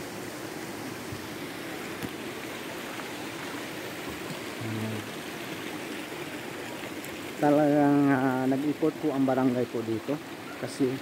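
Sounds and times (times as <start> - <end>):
stream flowing over rocks: 0.0 - 11.0
brief low hum: 4.6 - 5.1.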